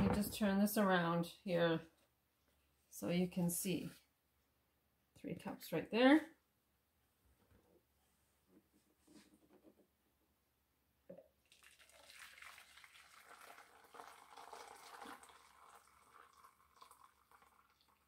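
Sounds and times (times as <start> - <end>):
water pouring into a cup: 11.4 - 18.0.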